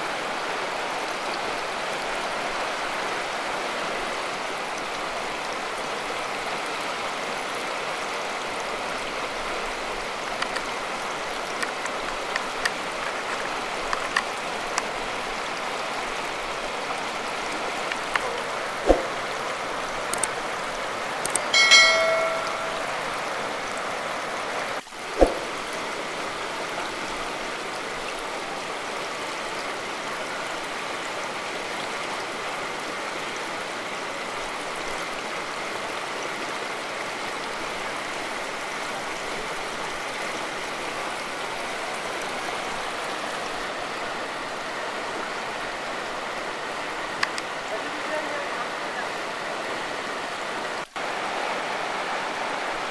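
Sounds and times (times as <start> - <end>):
river rushing over rocks: 0.0 - 52.9
sharp clicks: 21.3 - 21.5
brief ringing tone: 21.4 - 23.1.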